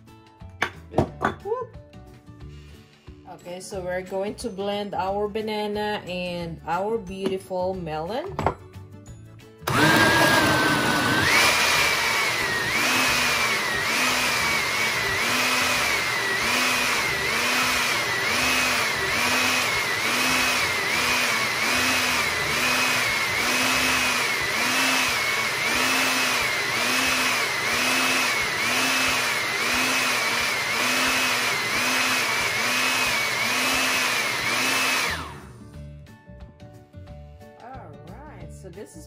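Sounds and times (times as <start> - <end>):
blender motor whining: 9.6 - 35.7.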